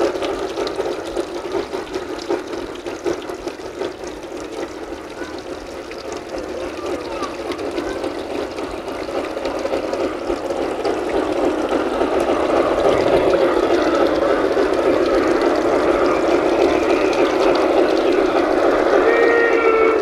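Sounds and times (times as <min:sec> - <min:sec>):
model railway running noise: 0:00.0 - 0:20.0
steam locomotive chord whistle: 0:18.4 - 0:20.0.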